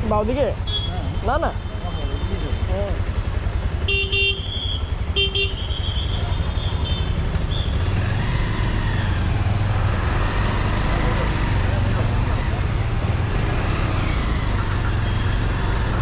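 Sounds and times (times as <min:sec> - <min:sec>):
motorcycle engine running: 0:00.0 - 0:16.0
vehicle horn beeping: 0:00.6 - 0:02.7, 0:03.8 - 0:07.3.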